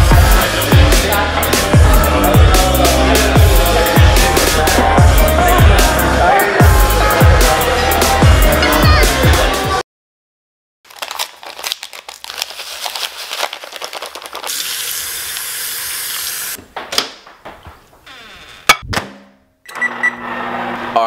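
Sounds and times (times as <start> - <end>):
music: 0.0 - 9.8.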